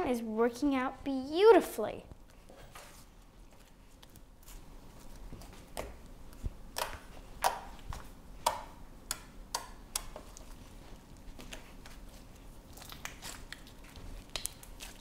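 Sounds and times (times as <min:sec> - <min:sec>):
slime clicking and squelching: 0:05.0 - 0:15.0.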